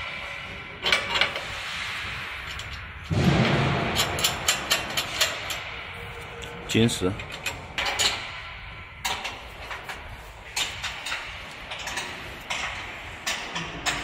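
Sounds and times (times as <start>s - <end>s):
wrench clicking on bolts: 4.0s - 5.6s.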